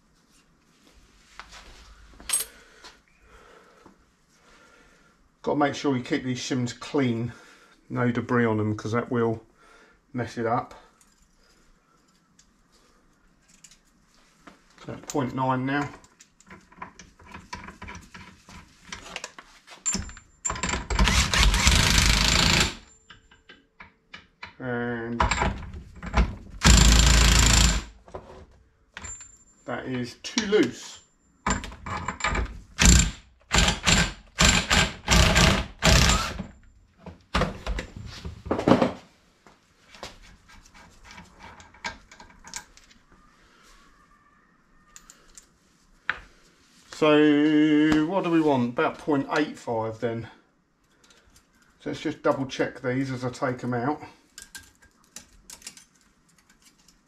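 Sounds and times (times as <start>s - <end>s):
power tool running: 21.0s - 22.8s, 32.8s - 36.4s
hand tools clicking and tapping: 23.0s - 24.6s, 54.3s - 57.0s.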